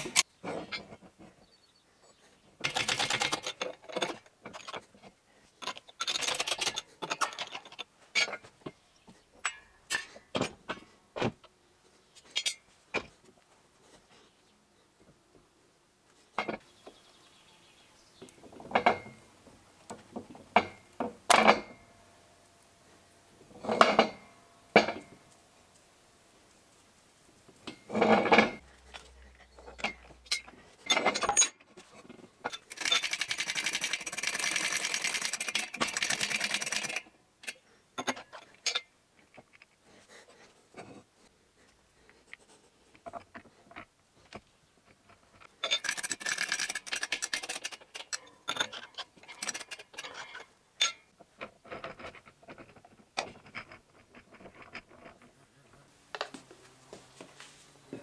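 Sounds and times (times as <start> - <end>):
mechanical rattling: 32.5 - 37.1, 45.4 - 50.5.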